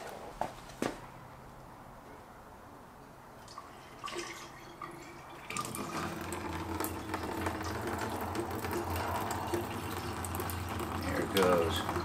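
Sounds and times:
liquid pouring from a jug: 3.4 - 12.0.

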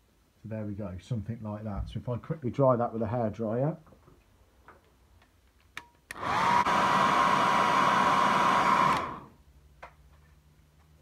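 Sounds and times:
hairdryer motor whine: 6.1 - 9.4.

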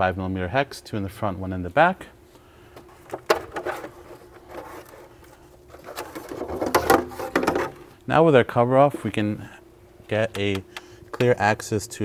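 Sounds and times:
hard plastic clatter: 2.8 - 5.1, 5.7 - 7.8.

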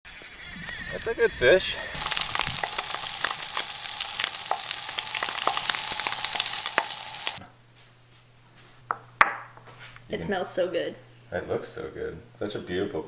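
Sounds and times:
fish sizzling in a frying pan: 0.1 - 7.4.

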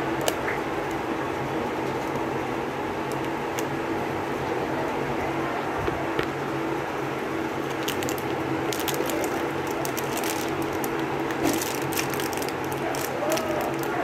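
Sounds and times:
steady low hum: 0.0 - 14.0
cellophane wrapper crinkling: 7.6 - 14.0.

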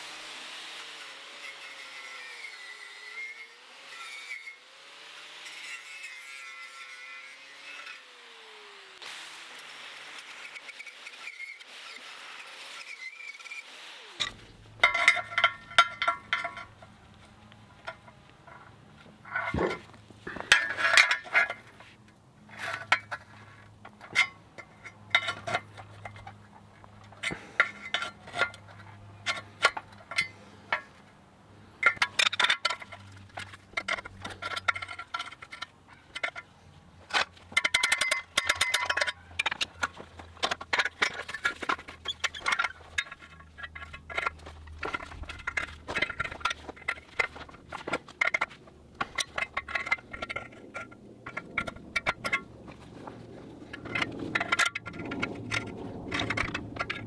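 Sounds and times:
steel wrenches clinking on metal: 14.2 - 21.8, 22.5 - 31.0, 31.8 - 57.0.

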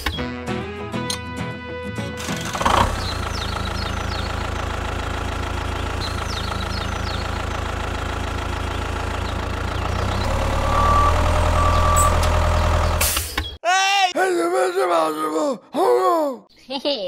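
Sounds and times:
tractor engine rumbling: 2.1 - 13.6.

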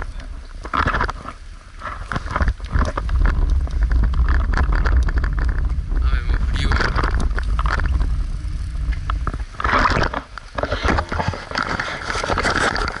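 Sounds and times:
wind rumbling on microphone: 0.0 - 13.0
camera handling scraping and rustling: 0.7 - 5.6, 9.1 - 13.0.

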